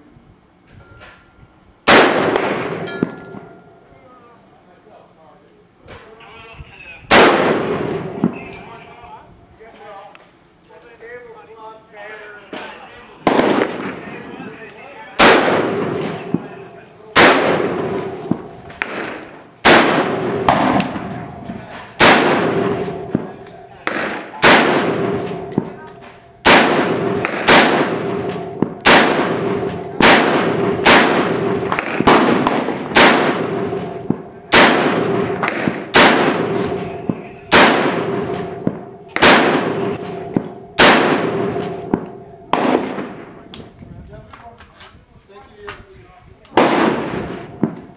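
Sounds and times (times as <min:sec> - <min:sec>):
rifle shots with ringing echo: 0:01.9 - 0:03.8, 0:07.1 - 0:08.6, 0:13.2 - 0:14.3, 0:15.2 - 0:43.5, 0:46.6 - 0:47.9.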